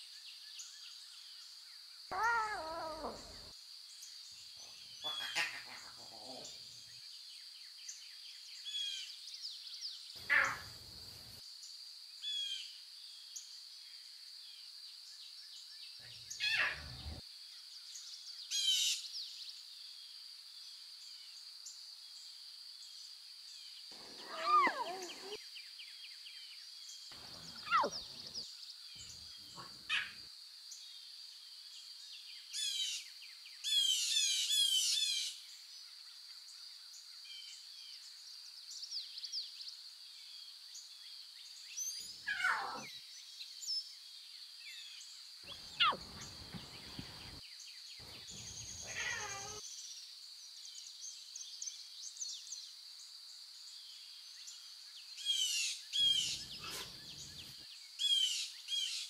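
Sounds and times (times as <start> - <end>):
lion cubs mewing: 2.1 - 3.5, 5.0 - 6.6, 10.2 - 10.8, 16.3 - 17.2, 23.9 - 25.4, 27.1 - 28.5, 29.4 - 30.2, 42.2 - 42.9, 45.5 - 47.4, 48.0 - 49.6, 56.0 - 57.4
birds chirping: 2.1 - 6.9, 10.2 - 11.0, 16.0 - 17.2, 23.9 - 25.4, 27.1 - 30.2, 45.5 - 47.4, 48.0 - 49.6.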